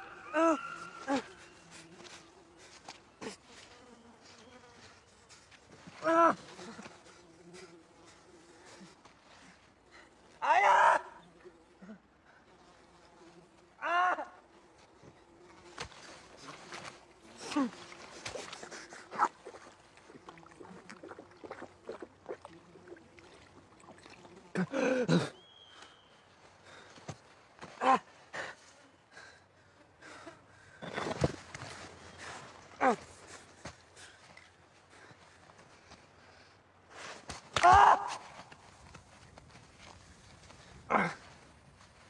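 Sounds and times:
man's strained cry: 13.8s - 14.4s, 24.5s - 25.4s
water splashing and slurping: 16.3s - 24.7s.

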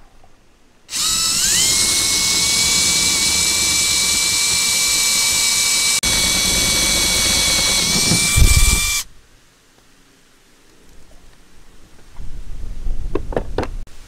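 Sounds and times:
power drill drilling into sheet metal: 0.9s - 9.1s.

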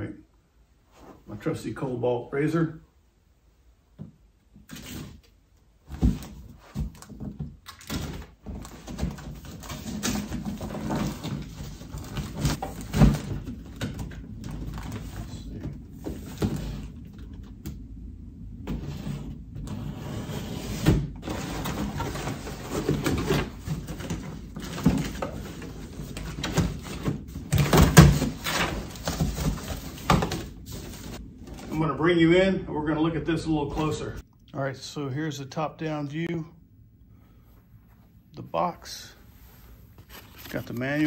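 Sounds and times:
cardboard scraping and rustling: 7.9s - 17.0s, 18.6s - 31.8s, 40.0s - 41.0s.

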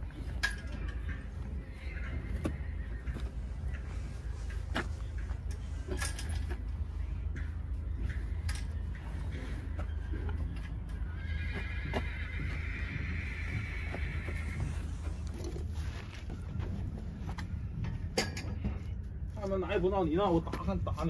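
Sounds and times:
horse whinnying: 10.9s - 15.6s.

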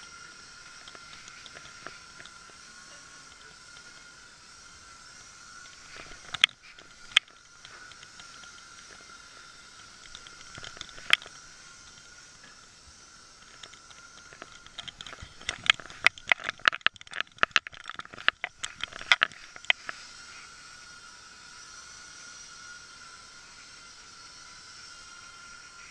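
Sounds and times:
steady faint tone: 0.0s - 25.9s
sharp clicks and clacks: 13.4s - 20.0s.

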